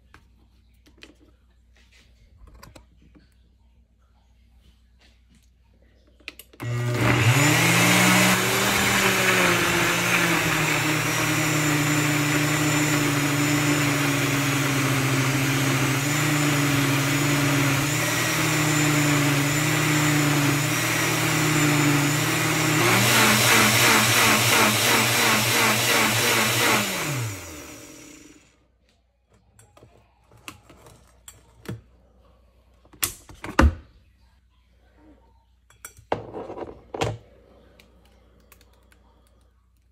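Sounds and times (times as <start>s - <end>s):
blender motor running: 6.6s - 28.5s.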